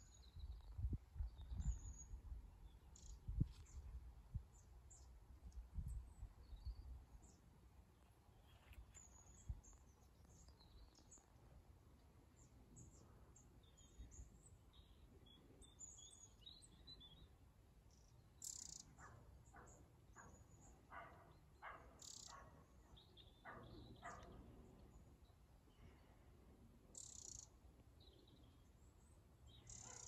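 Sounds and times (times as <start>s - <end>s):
small birds chirping: 0.0s - 3.8s, 8.3s - 11.5s, 12.3s - 26.2s, 26.9s - 30.0s.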